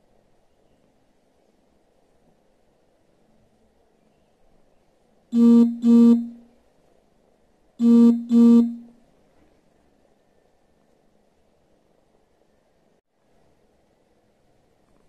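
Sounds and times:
keyboard-like double tone: 5.4 - 6.4, 7.8 - 8.9.

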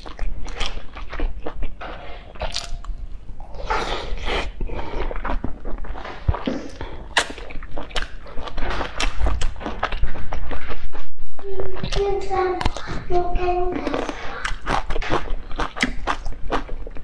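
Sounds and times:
wet mouth clicks: 0.0 - 10.8, 12.6 - 13.1, 13.8 - 17.0
mouth smacks: 0.0 - 10.9, 11.8 - 13.1, 13.8 - 17.0
person chewing soft bun: 0.0 - 12.0, 13.8 - 17.0.

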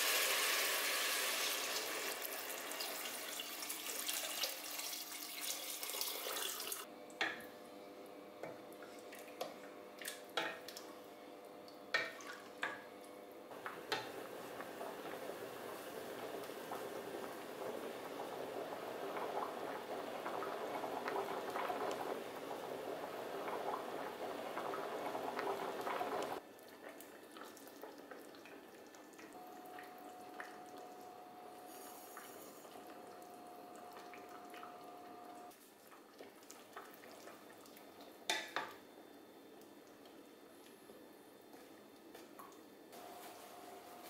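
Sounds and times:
lentils boiling and bubbling: 0.0 - 7.4, 13.5 - 44.0.

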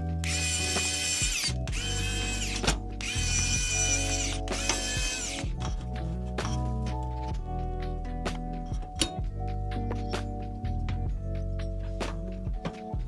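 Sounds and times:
background music: 0.0 - 13.0
electric screwdriver running: 0.2 - 5.8.

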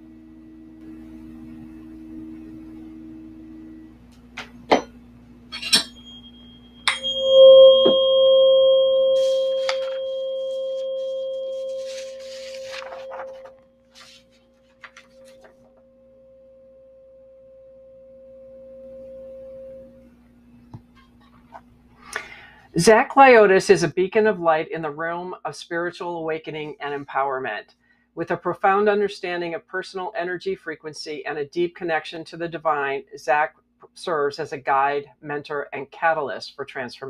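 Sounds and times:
tuning forks ringing: 0.0 - 4.0, 4.7 - 13.6, 16.2 - 20.2.

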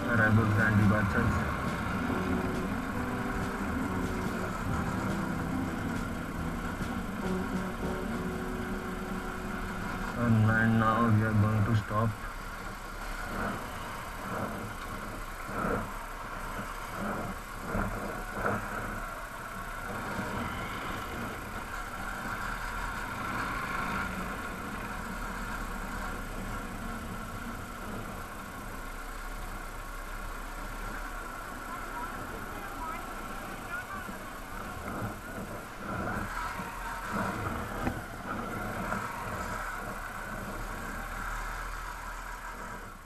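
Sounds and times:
motorbike running: 0.0 - 43.0.

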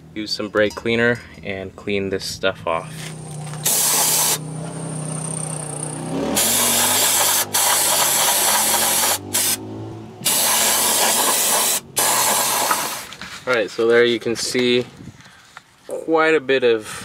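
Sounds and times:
aerosol spray hissing: 3.6 - 4.4, 6.4 - 9.6, 10.3 - 13.1.

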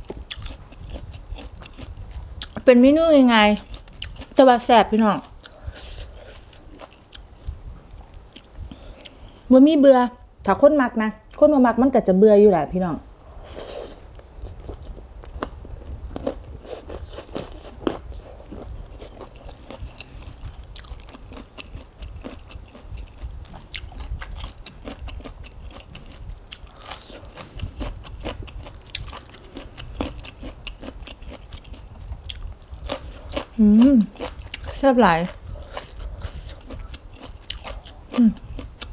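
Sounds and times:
wet chewing: 0.0 - 2.7, 3.4 - 4.4, 13.5 - 38.9.

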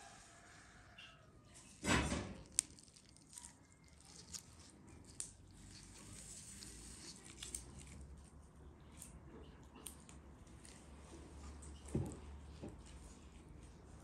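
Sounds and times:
moist squishing of sewing: 2.2 - 8.3.

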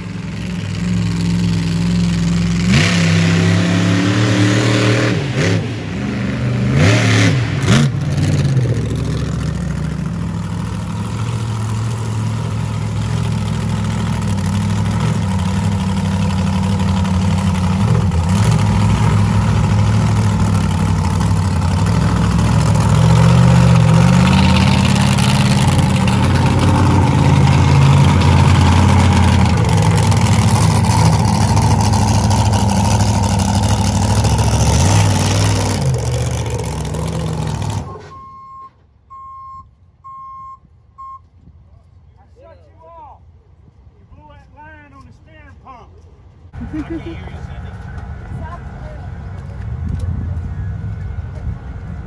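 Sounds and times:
monster truck engine revving: 0.0 - 38.1.

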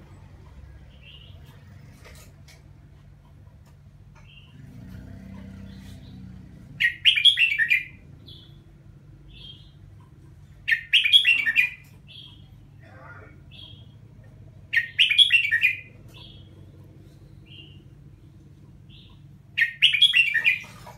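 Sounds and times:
bird singing warbled phrases: 5.5 - 20.9.

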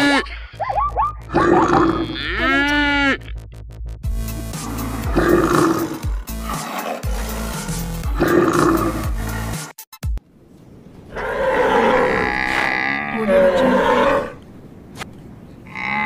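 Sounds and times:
tiger roaring and growling: 1.3 - 3.4, 4.4 - 9.6, 11.1 - 14.4
wavering animal bellow: 4.5 - 9.6, 11.1 - 14.4.

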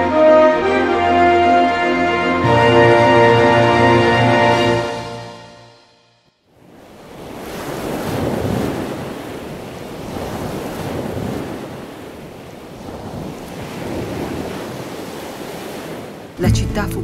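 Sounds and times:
sea waves washing in: 6.5 - 17.0.

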